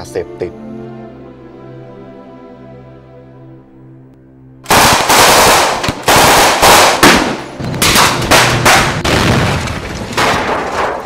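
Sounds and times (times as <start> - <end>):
automatic gunfire bursts: 4.7 - 7.4.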